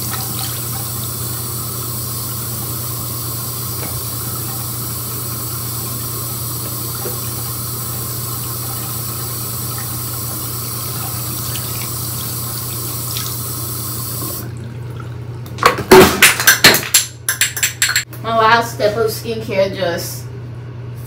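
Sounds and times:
sink tap running: 0.0s - 15.6s, 16.4s - 18.1s
hard objects clattering in sink: 15.5s - 18.1s.

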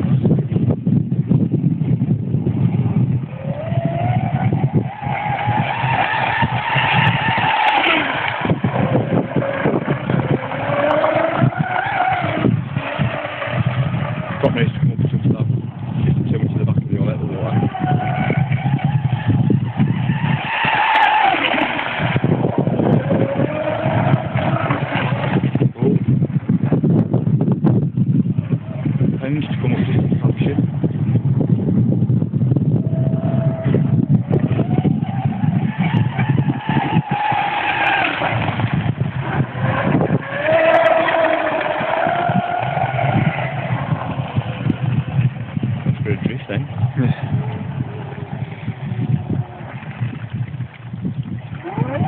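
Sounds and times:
wind buffeting microphone: 0.0s - 52.0s
rc boat motor whining: 3.2s - 16.2s, 17.2s - 25.8s, 32.7s - 52.0s.

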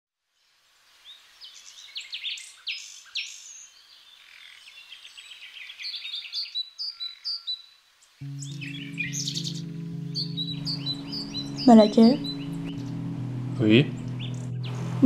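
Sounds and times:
birds chirping and singing: 4.4s - 15.0s.

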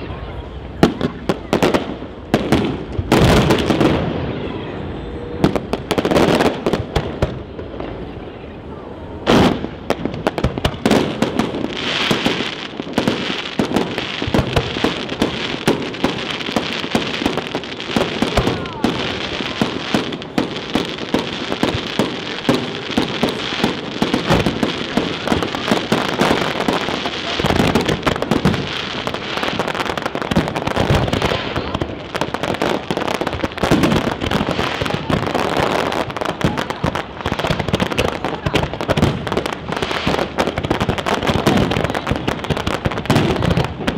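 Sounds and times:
aerial fireworks bangs and crackle: 0.2s - 8.2s, 9.2s - 43.9s.

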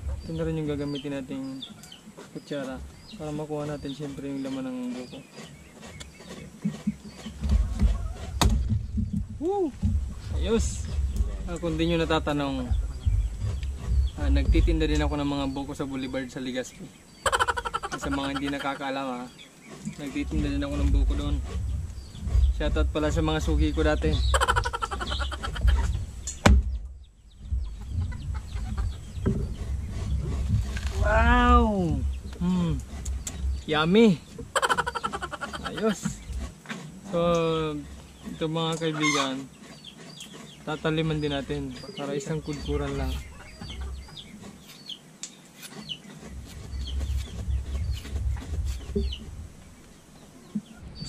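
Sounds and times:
high chirping bird calls: 0.0s - 36.5s, 37.7s - 51.0s
knife cutting coconut husk: 2.2s - 8.6s, 44.4s - 49.1s
low rumble: 7.5s - 16.4s, 20.2s - 34.6s
fowl clucking: 17.2s - 18.9s, 24.1s - 26.0s, 34.4s - 36.3s, 38.8s - 39.4s.

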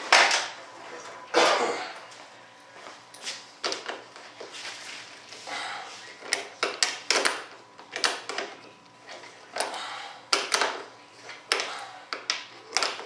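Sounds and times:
small parts and tool clicking: 10.3s - 13.0s.

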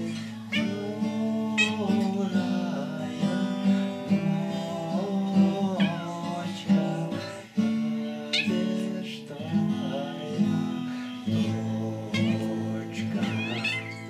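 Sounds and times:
cat meowing: 0.0s - 1.0s, 1.6s - 2.0s, 12.1s - 14.0s
guitar strumming chords: 0.0s - 14.0s.

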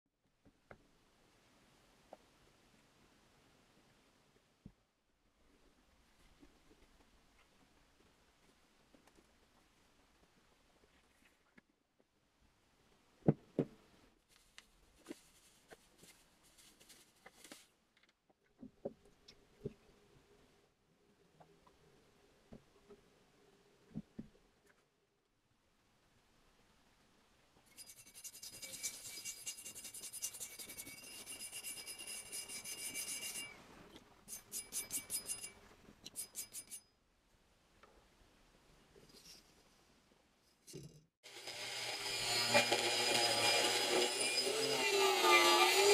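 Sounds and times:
abrasive stick scrubbing metal: 27.7s - 33.6s, 34.3s - 36.8s.

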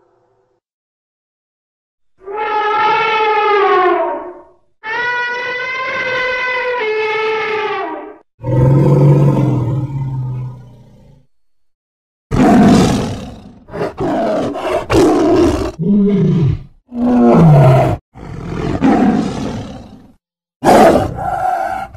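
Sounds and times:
tiger roaring: 8.4s - 11.3s, 12.3s - 21.9s.

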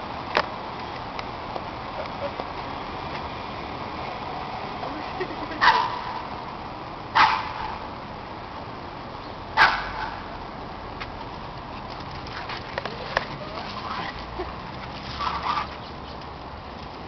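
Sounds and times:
dog barking: 5.6s - 6.0s, 7.2s - 7.6s, 9.6s - 10.2s.

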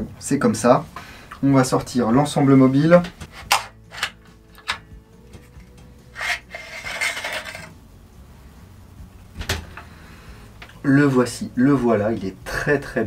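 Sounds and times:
metal bolt scraping slide: 3.2s - 4.8s, 6.1s - 7.7s.

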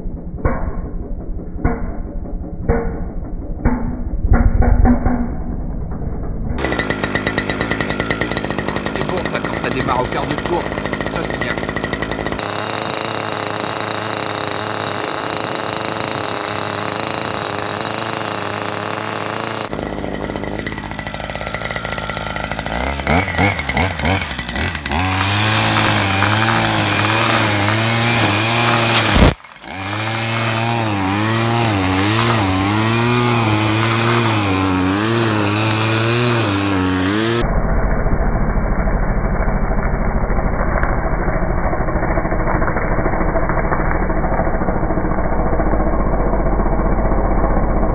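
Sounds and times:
brush cutter engine revving: 6.6s - 37.4s
line head cutting grass: 6.6s - 37.4s.

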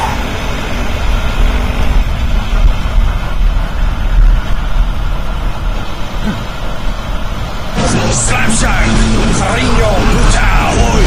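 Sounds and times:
wind noise on microphone: 0.0s - 7.8s
motorcycle engine: 0.0s - 11.0s.

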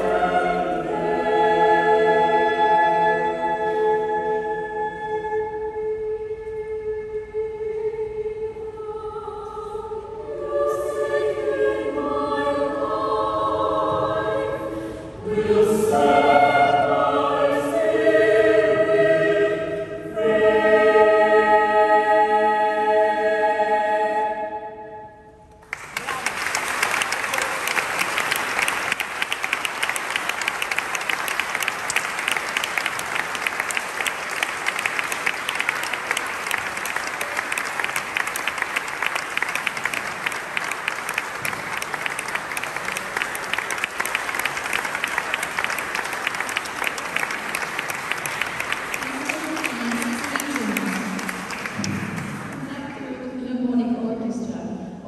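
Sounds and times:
choir singing held chord: 0.0s - 25.3s
audience applause: 25.6s - 52.7s.

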